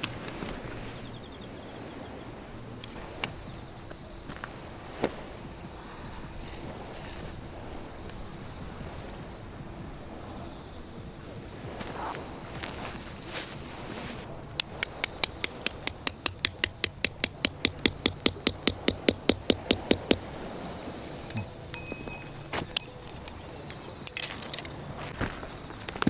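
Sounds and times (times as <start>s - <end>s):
hammer striking tent peg: 14.6s - 20.2s
ringing metallic clinks: 21.3s - 24.8s.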